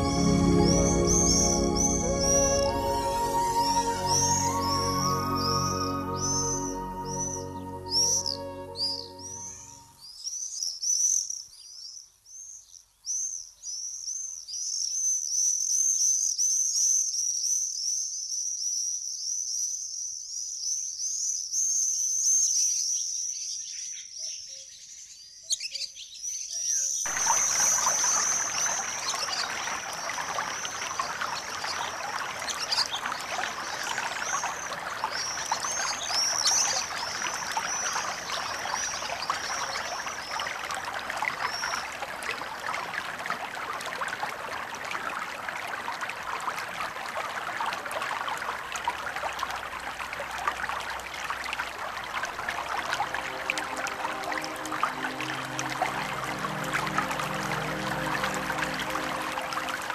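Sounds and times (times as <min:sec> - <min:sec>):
river rushing over rocks: 0:27.1 - 0:45.2, 0:49.1 - 0:59.9.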